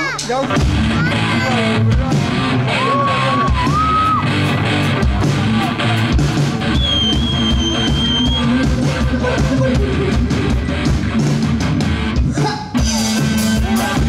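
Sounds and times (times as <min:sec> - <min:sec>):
rock band playing: 0:00.0 - 0:14.0
drum hits: 0:00.1 - 0:02.7.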